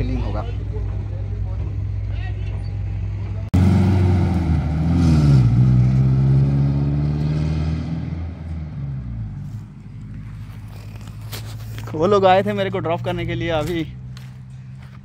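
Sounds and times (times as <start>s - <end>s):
pickup truck engine pulling away: 3.6s - 14.9s.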